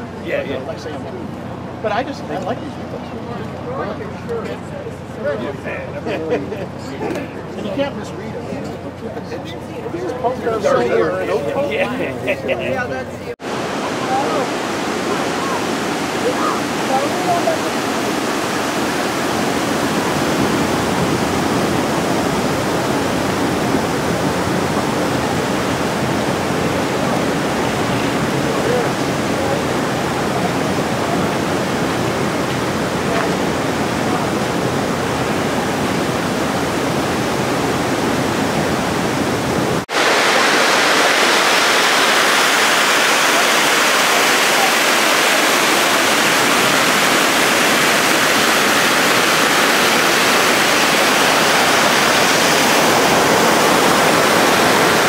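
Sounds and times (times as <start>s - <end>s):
water pouring through spillway: 39.8s - 55.0s.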